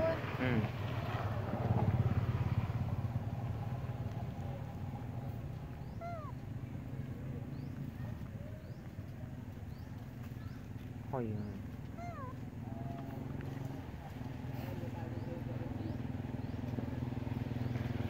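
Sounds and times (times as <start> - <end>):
steady low rumble: 0.6 - 17.4
young monkeys calling: 5.4 - 6.6, 11.4 - 13.2
young monkeys squeaking: 5.7 - 6.4, 11.9 - 12.4.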